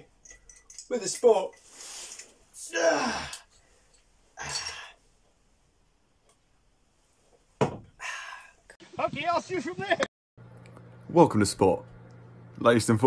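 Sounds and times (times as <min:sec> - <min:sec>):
man groaning: 0:02.6 - 0:03.5
breathy sigh: 0:08.0 - 0:08.7.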